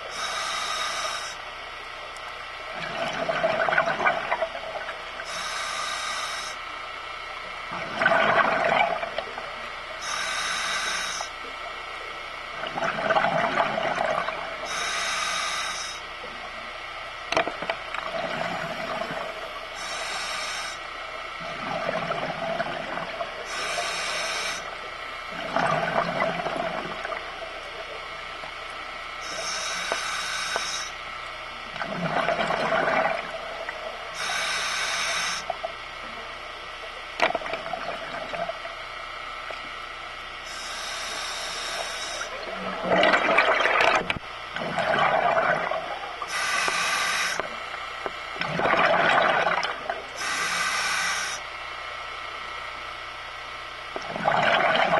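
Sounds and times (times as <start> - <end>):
diver breathing through regulator: 0.0 - 1.4, 5.2 - 6.7, 10.0 - 11.4, 13.5 - 16.1, 18.1 - 21.0, 21.6 - 24.8, 29.2 - 31.0, 32.7 - 35.6, 40.4 - 42.4, 44.8 - 47.7, 48.6 - 51.5
exhaled air bubbling: 0.0 - 54.9.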